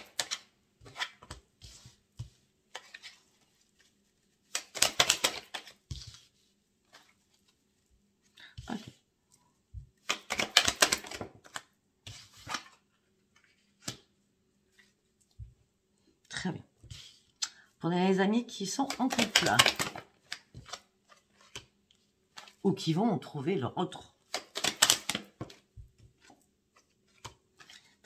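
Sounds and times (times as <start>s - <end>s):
cards shuffling flicking clicks: 0.0s - 1.4s, 4.5s - 5.8s, 10.0s - 11.7s, 18.8s - 21.6s, 24.3s - 25.6s.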